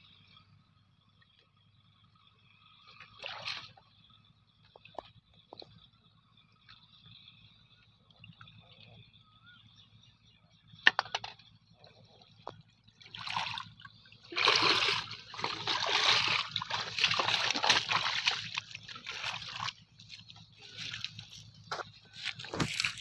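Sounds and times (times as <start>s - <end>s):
water splashing around legs: 13.0s - 23.0s.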